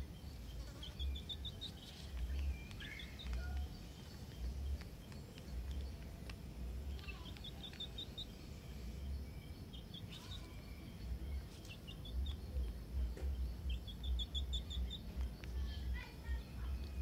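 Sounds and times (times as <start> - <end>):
bird calling: 0.0 - 6.0.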